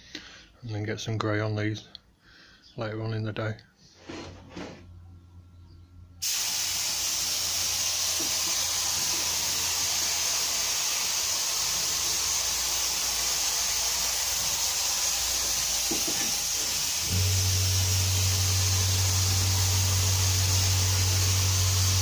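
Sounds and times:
paint spray gun hissing: 6.2 - 22.0.

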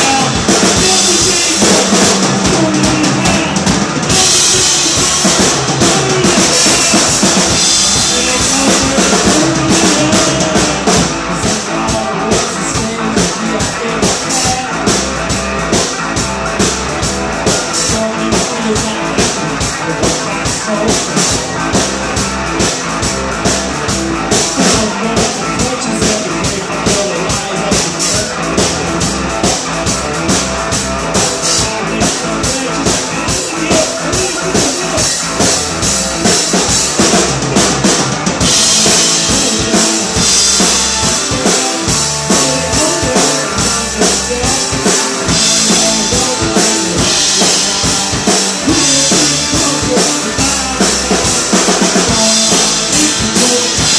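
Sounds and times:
driving drum beat: 0.0 - 53.9
live rock band playing: 0.0 - 53.9.

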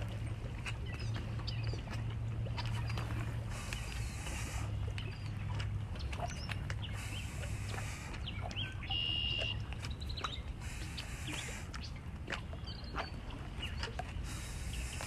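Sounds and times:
steady low rumble: 0.0 - 15.0
birds chirping and calling: 2.6 - 12.0.

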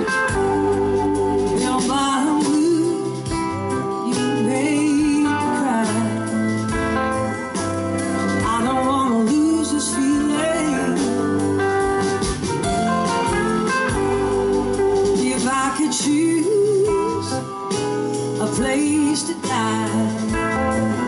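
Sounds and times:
woman singing: 0.0 - 6.5, 8.4 - 11.8, 14.4 - 17.5, 18.4 - 21.0
blues-rock band playing: 0.0 - 21.0.

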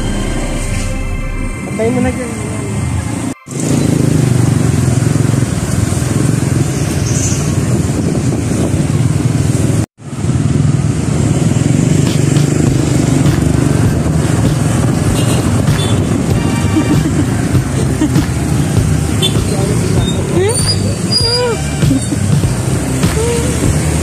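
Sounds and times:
road noise: 0.0 - 24.0
motorcycle engine running: 3.5 - 24.0.

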